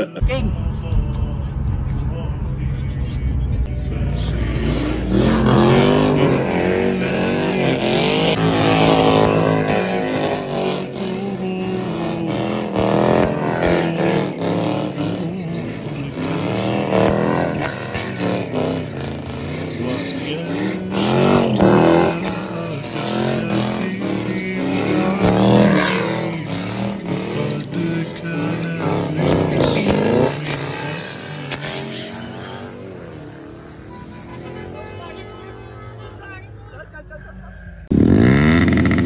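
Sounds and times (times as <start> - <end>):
car engine revving hard: 3.8 - 35.6, 37.8 - 39.0
tyres squealing: 4.5 - 36.4.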